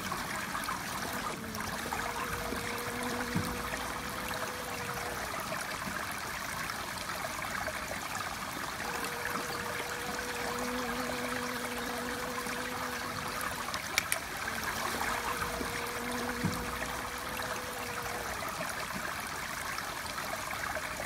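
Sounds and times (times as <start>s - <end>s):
faint steady hum: 0.0s - 21.0s
running water: 0.0s - 21.0s
light clicks: 13.9s - 14.3s.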